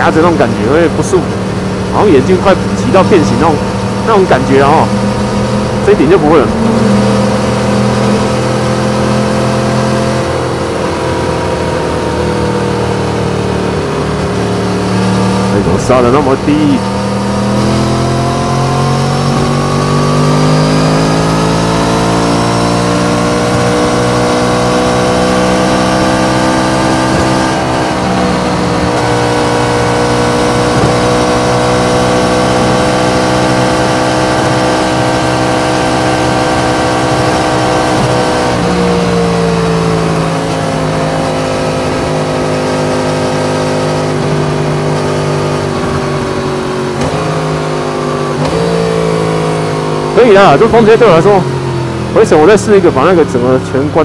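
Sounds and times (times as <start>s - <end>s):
motorcycle engine pulling at speed: 0.0s - 54.0s.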